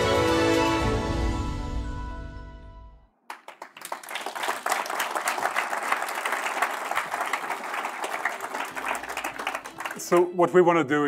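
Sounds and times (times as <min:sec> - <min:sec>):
background music: 0:00.0 - 0:03.1, 0:08.3 - 0:11.0
audience applause: 0:03.3 - 0:10.3.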